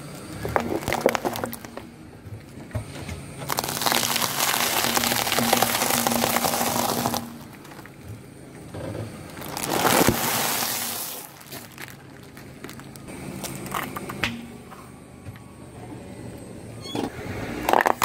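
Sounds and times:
tyre crushing crunchy food packs: 0.3 - 1.8, 3.4 - 8.0, 9.2 - 14.0.

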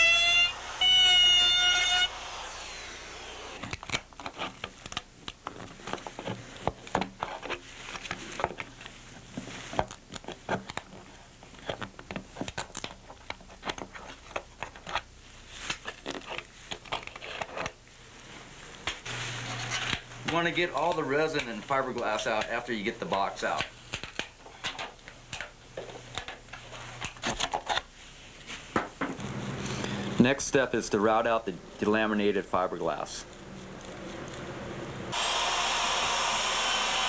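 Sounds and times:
wavering siren-like tone: 0.0 - 3.6.

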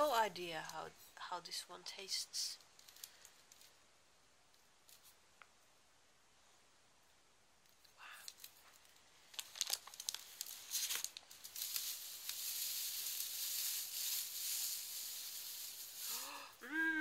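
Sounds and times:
hand rustling through straw: 10.0 - 16.6.

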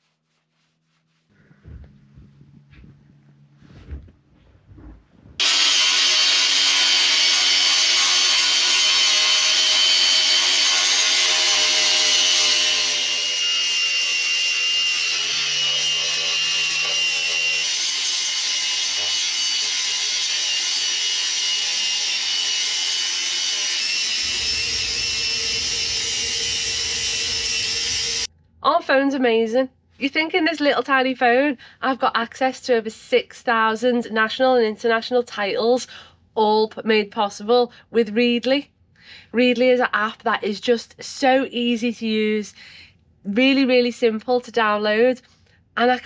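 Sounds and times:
electric motor whining: 5.4 - 28.3.

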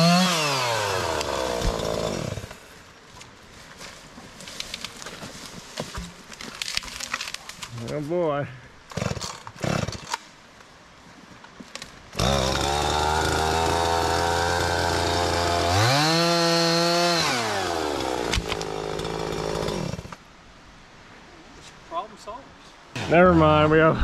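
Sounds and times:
chainsaw revving: 0.0 - 2.6, 8.9 - 10.1, 12.2 - 20.1
chainsaw starting and idling: 0.0 - 2.6, 8.9 - 10.2, 12.2 - 20.2.

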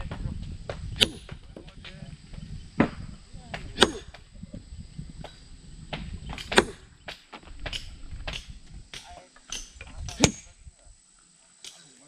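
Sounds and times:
blade chopping wood: 0.0 - 2.0, 2.8 - 4.2, 5.9 - 10.5.

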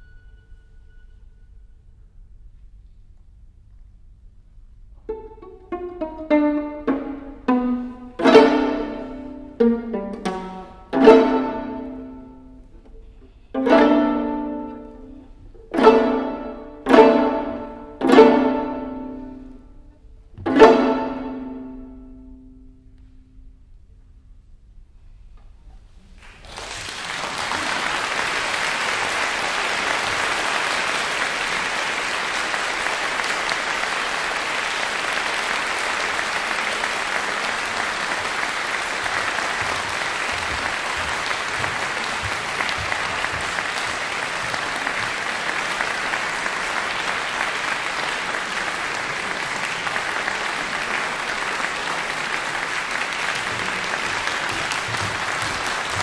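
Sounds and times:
audience applauding: 8.2 - 12.0, 26.1 - 56.0.

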